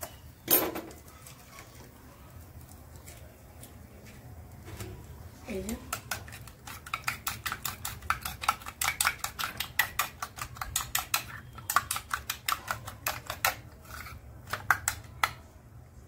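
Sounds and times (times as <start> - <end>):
utensil beating egg in a bowl: 5.4 - 15.4.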